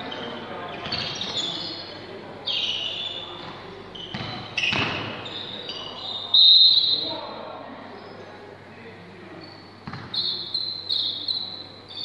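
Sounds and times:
shoes squeaking on gym floor: 0.0 - 7.1, 9.4 - 12.0
voices echoing in hall: 0.0 - 12.0
basketball bouncing: 3.4 - 5.1, 9.8 - 10.2.

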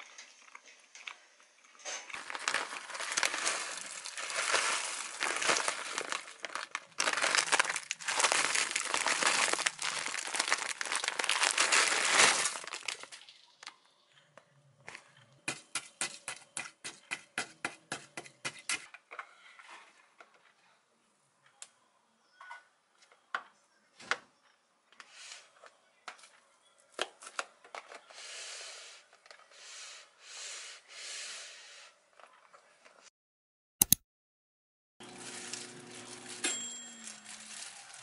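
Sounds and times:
frozen grains pouring into pot: 2.1 - 13.2, 35.0 - 38.0.

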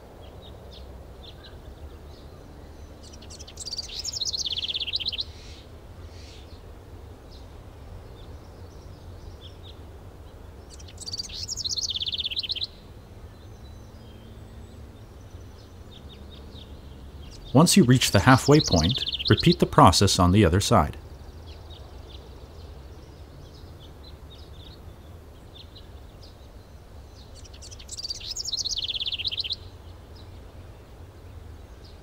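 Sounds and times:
faint bird chirps: 0.4 - 6.6, 10.6 - 30.3
songbird trilling: 3.0 - 6.5, 10.7 - 12.8, 15.4 - 20.9, 27.2 - 29.7.

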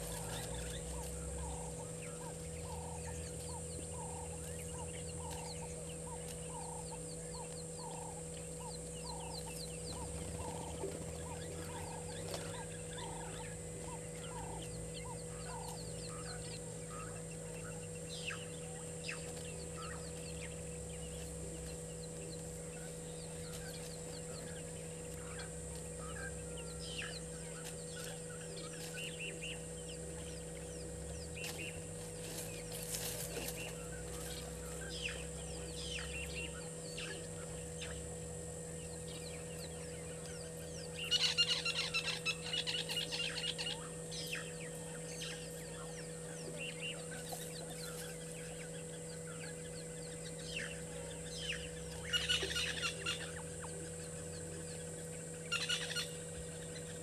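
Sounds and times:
low hum: 0.0 - 57.0.

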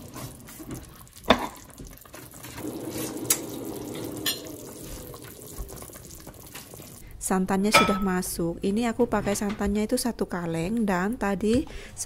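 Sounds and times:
broth bubbling at a simmer: 0.0 - 7.0.

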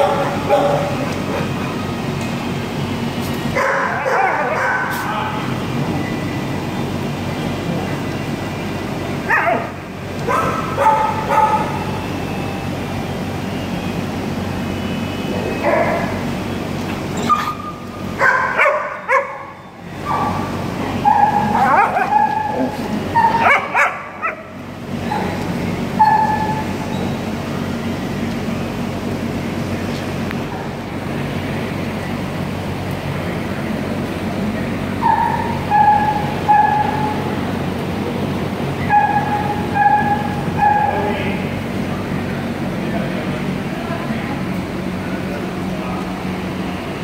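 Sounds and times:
steady background hum: 0.0 - 47.0
dogs yelping and whining: 3.6 - 5.0, 9.3 - 11.9, 17.1 - 25.4, 26.0 - 27.1, 35.0 - 37.2, 38.8 - 41.0.

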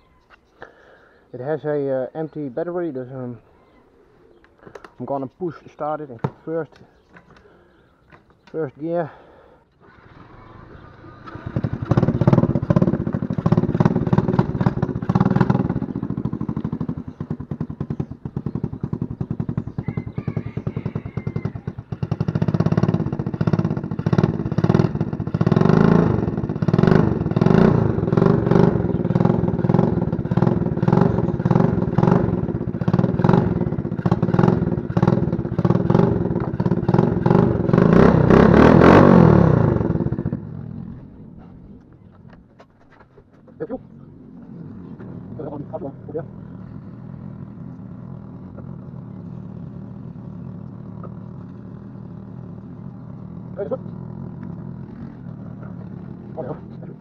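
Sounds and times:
quad engine revving: 9.8 - 41.4, 44.0 - 57.0.

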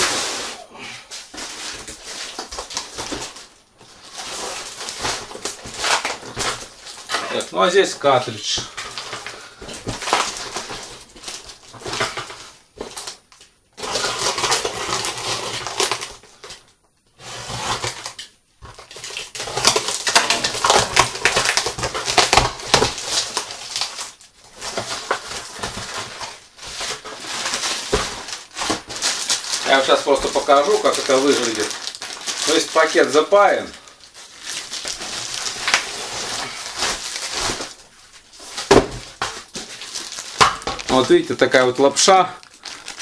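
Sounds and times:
packaging crinkling and rustling: 0.0 - 43.0.

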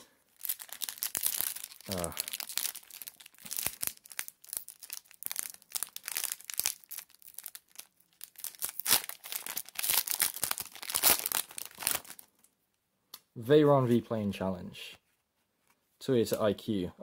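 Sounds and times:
card wrappers crinkling: 0.3 - 12.5.

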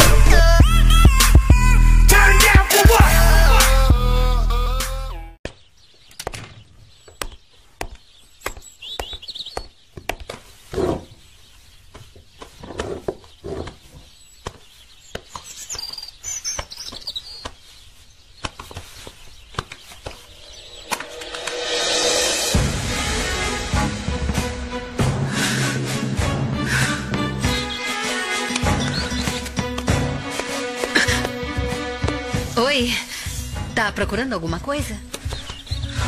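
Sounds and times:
hip-hop music: 0.0 - 5.4, 21.2 - 33.0
bird chirps: 5.5 - 10.4, 11.1 - 22.3, 27.4 - 29.8, 35.1 - 36.0.

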